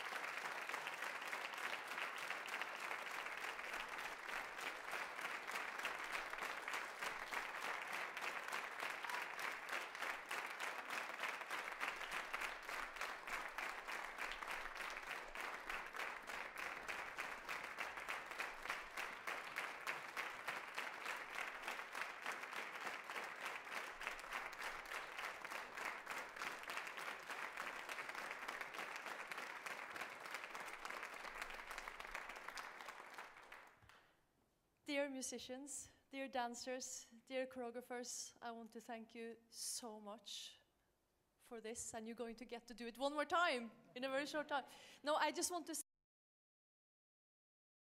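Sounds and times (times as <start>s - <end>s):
audience applauding: 0.0s - 33.9s.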